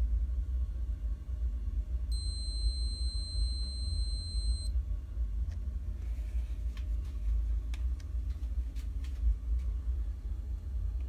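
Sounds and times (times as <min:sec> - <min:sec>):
steady low rumble: 0:00.0 - 0:11.0
high-pitched scanner beep: 0:02.1 - 0:04.7.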